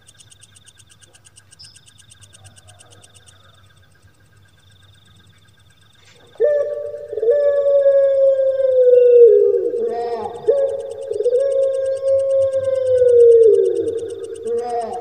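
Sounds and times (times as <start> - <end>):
dove cooing: 6.0 - 15.0.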